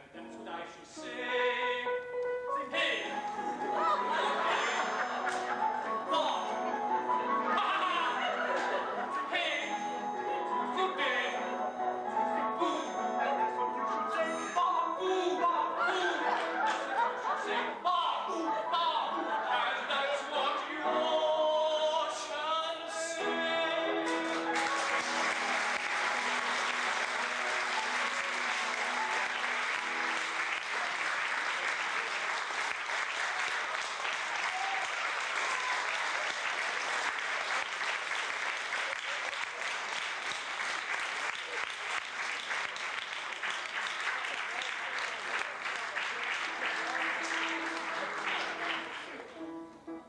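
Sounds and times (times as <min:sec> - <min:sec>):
sung stage number with accompaniment: 0:00.0 - 0:50.0
audience applauding: 0:03.2 - 0:10.6, 0:15.9 - 0:17.4, 0:24.0 - 0:49.4.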